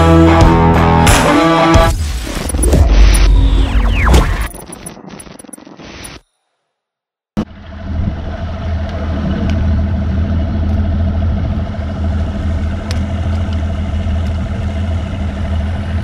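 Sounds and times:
outboard motor running: 7.4s - 16.0s.

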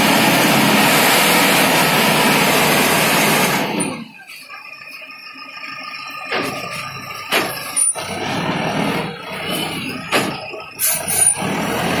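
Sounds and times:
concrete mixer running: 0.0s - 4.0s, 11.3s - 12.0s
hydraulics working: 0.0s - 12.0s.

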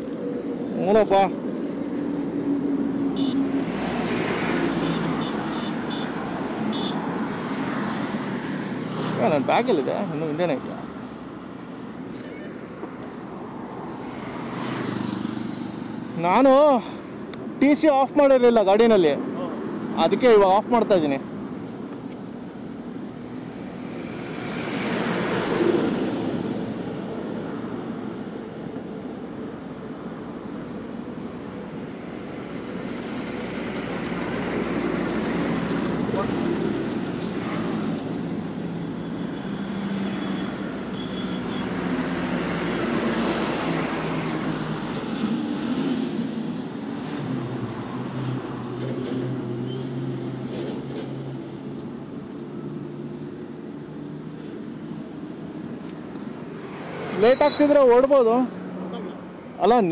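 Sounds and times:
highway traffic passing: 0.0s - 59.9s.

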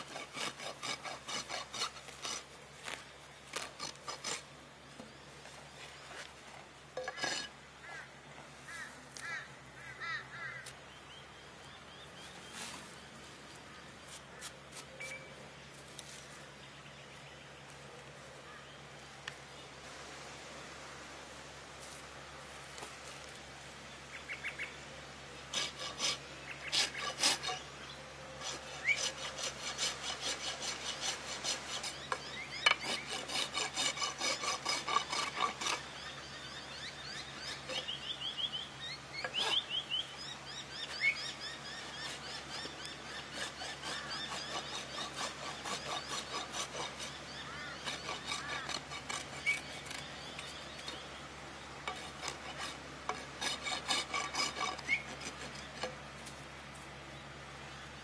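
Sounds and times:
hoof rasp scraping: 0.0s - 5.1s, 5.7s - 7.6s, 25.5s - 38.2s, 39.2s - 40.0s, 40.8s - 51.2s, 51.8s - 56.1s.

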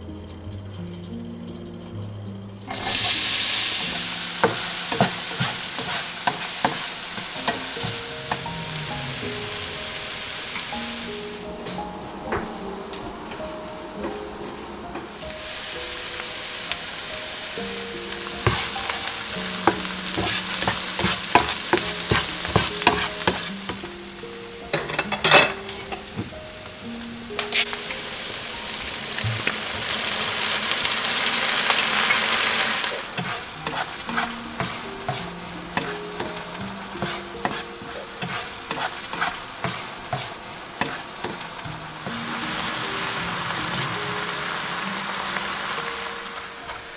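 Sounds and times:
soft melody: 0.0s - 46.9s
onions sizzling in a frying pan: 2.7s - 46.9s.

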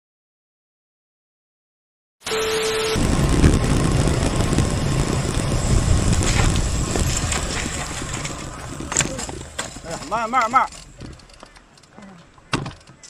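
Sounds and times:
steady beep: 2.3s - 3.0s
static hiss: 2.3s - 11.0s
wind buffeting microphone: 3.0s - 11.8s.

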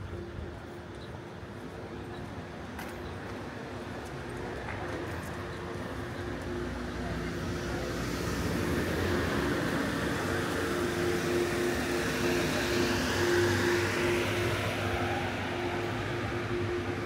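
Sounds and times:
vehicle engine approaching: 8.4s - 17.0s.

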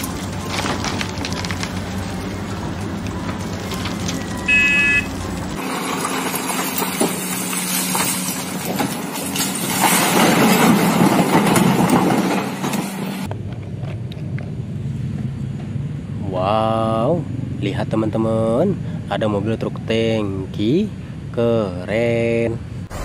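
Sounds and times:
rock being dug and loaded: 0.0s - 4.5s
diesel engine running: 0.0s - 12.1s, 22.6s - 23.0s
short beep: 4.4s - 5.2s.

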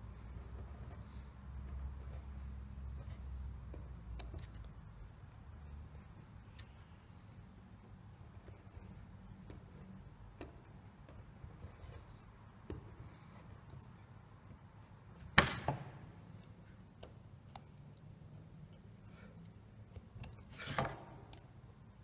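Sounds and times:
knife carving wood: 0.0s - 5.5s, 6.4s - 14.6s, 19.9s - 21.4s.

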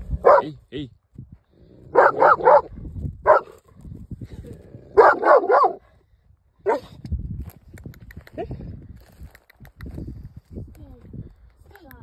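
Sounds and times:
dog barking: 0.2s - 0.6s, 1.9s - 3.5s, 5.0s - 5.8s, 6.6s - 6.9s.

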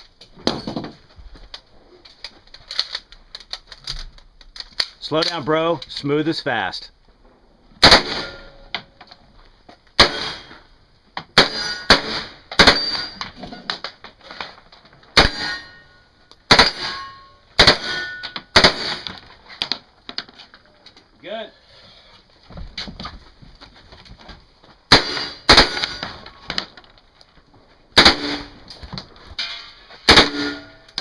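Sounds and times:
submachine gun firing: 7.8s - 8.5s, 11.4s - 13.0s, 17.6s - 18.0s, 18.6s - 19.1s, 24.9s - 26.2s, 28.0s - 28.6s
steel targets ringing: 11.4s - 13.2s, 15.2s - 19.0s, 29.4s - 31.0s.

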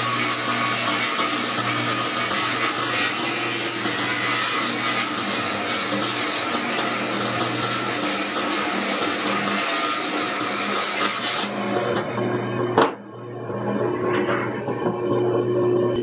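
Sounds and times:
table saw cutting board: 0.0s - 16.0s.

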